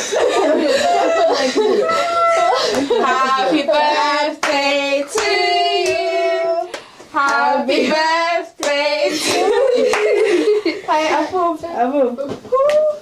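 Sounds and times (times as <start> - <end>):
hand claps: 4.4 - 4.6, 6.7 - 7.4, 8.6 - 8.8, 9.4 - 10.3.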